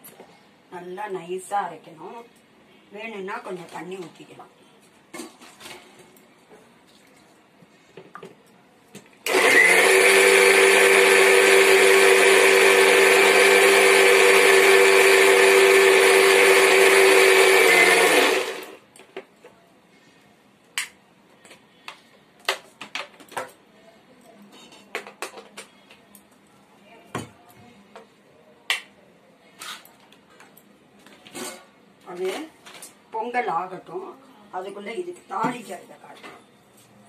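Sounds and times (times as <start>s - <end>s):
mixer grinder humming: 9.3s - 18.8s.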